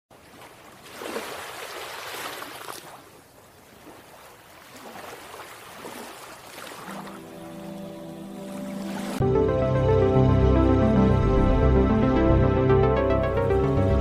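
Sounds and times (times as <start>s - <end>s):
sea waves breaking: 0.1s - 10.0s.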